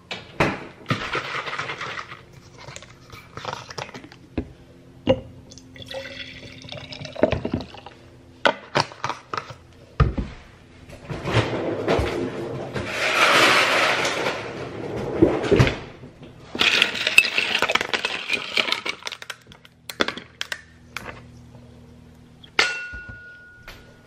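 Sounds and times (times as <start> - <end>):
coffee pouring into carafe: 5.5 - 8.0
glass clinks and knocks: 22.6 - 23.9.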